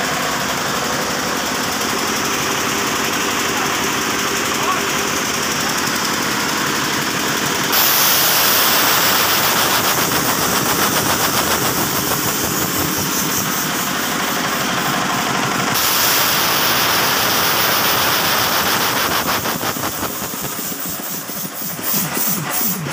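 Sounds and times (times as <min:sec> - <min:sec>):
diesel air compressor knocking: 0:00.0 - 0:22.9
compressed air hiss: 0:07.7 - 0:22.8.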